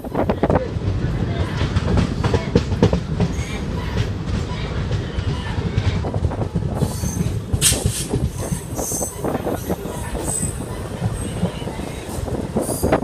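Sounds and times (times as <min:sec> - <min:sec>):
diesel train passing: 0:00.0 - 0:13.0
train rumbling over track: 0:00.0 - 0:13.0
wheel squeals: 0:06.8 - 0:11.4.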